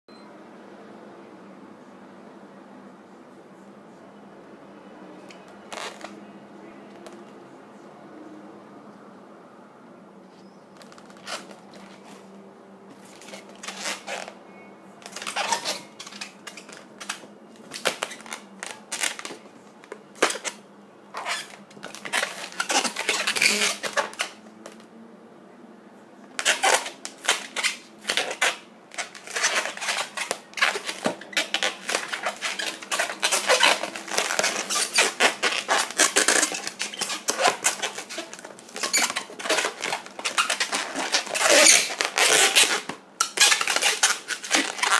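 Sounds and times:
balloon squeaking and crackling: 5.7 - 6.1, 10.8 - 12.2, 13.0 - 14.4, 15.0 - 19.5, 21.2 - 24.4, 26.4 - 44.9.

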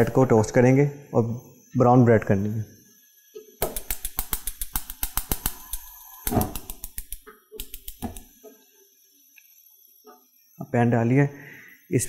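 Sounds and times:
gas igniter clicking rapidly: 3.6 - 8.4.

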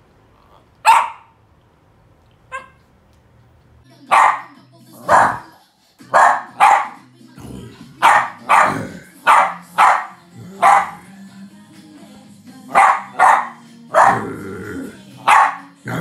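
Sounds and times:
dog barking: 0.8 - 1.4, 2.5 - 2.8, 4.1 - 7.0, 8.0 - 11.0, 12.7 - 14.3, 15.2 - 15.8.

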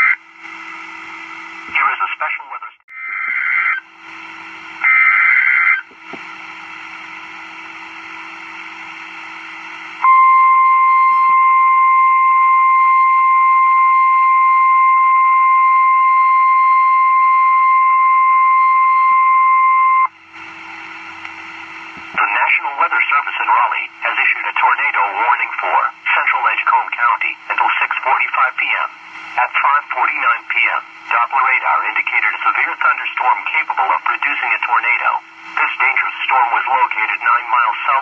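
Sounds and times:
radio hiss: 0.0 - 2.8, 3.6 - 10.0, 20.2 - 38.0
steady warning alarm tone: 3.8 - 26.5.

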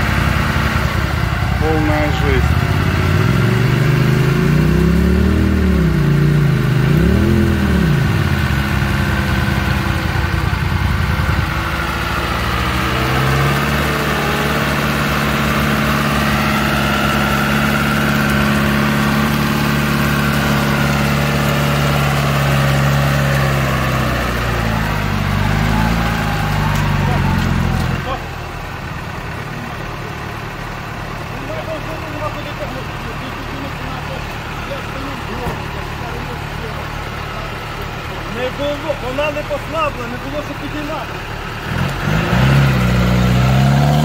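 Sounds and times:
engine revving and running: 0.0 - 44.0.

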